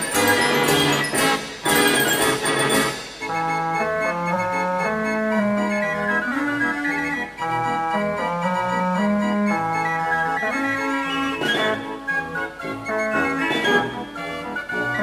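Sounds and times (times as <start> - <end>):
drum and cymbal strokes: 0.0 - 3.5
organ pipe notes over bass: 0.0 - 15.0.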